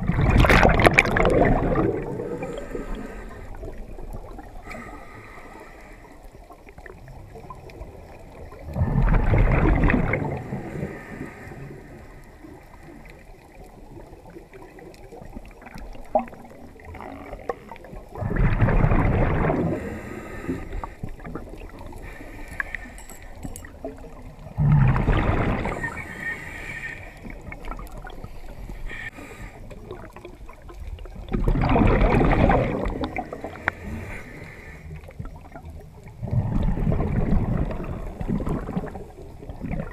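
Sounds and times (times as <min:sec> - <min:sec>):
breath bubbling under water: 0:00.0 - 0:04.7, 0:08.5 - 0:11.8, 0:17.9 - 0:23.0, 0:24.3 - 0:34.4, 0:35.0 - 0:39.9
underwater wash: 0:00.0 - 0:39.9
faint clicks: 0:11.2 - 0:18.1, 0:20.5 - 0:24.4, 0:33.0 - 0:35.2.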